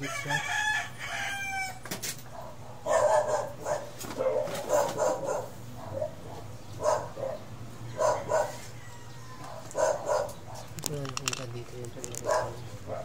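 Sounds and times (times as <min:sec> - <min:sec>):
rooster crowing: 0:00.0 - 0:01.9, 0:07.7 - 0:09.9
dog barking: 0:02.3 - 0:08.7, 0:09.4 - 0:10.8, 0:12.2 - 0:13.0.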